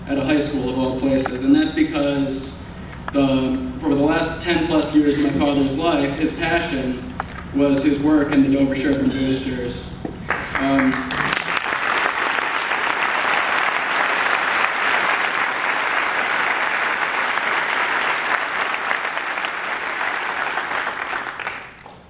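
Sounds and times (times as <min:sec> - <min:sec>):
audience applauding: 0:10.3 - 0:22.0.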